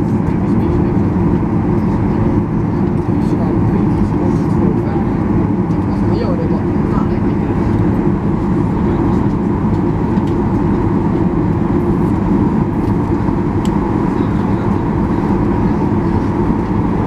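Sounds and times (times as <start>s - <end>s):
jet engines droning: 0.0s - 17.0s.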